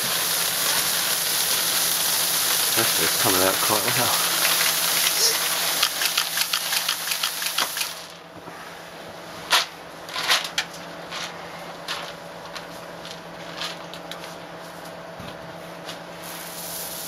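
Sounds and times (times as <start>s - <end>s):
dry feed pouring into bin: 0.0s - 8.1s
low machine hum: 0.0s - 17.0s.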